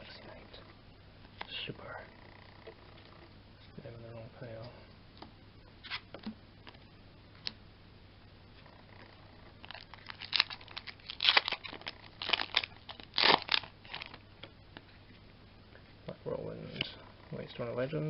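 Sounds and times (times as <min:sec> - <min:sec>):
foil wrapper crinkling: 0:09.6 - 0:14.2
foil wrapper tearing: 0:09.6 - 0:14.2.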